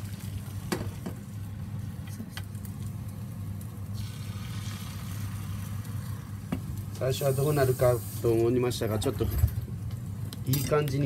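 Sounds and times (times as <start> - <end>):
egg sizzling in pan: 0.0 - 8.7
steady low hum: 0.0 - 11.0.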